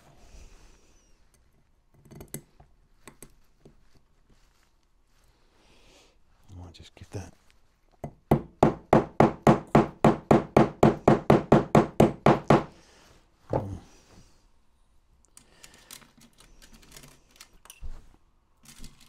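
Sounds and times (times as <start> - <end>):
faint clicks of parts handled: 15.1 - 19.0.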